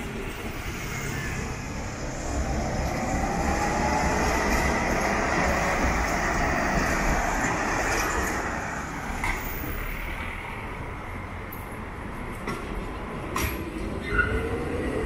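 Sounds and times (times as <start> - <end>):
street traffic: 0.0 - 15.0
tram rumbling on rails: 0.0 - 15.0.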